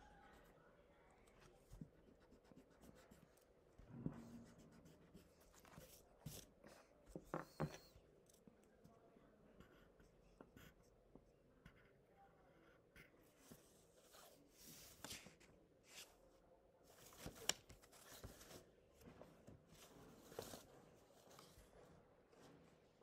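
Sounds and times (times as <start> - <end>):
pencil scratching on paper: 1.6 - 8.0, 9.6 - 14.3.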